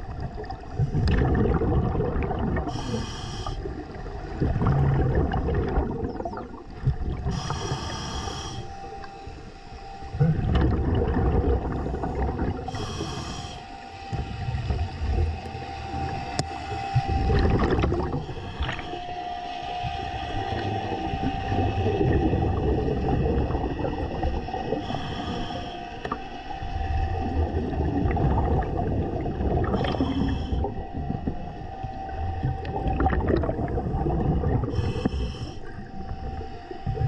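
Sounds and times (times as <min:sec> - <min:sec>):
bubbles rumbling and gurgling: 0:00.0 - 0:09.4, 0:10.0 - 0:37.0
regulator inhale hiss: 0:02.6 - 0:03.9, 0:07.2 - 0:10.1, 0:11.7 - 0:17.3, 0:18.0 - 0:19.7, 0:24.6 - 0:26.5, 0:29.6 - 0:30.9, 0:34.6 - 0:36.8.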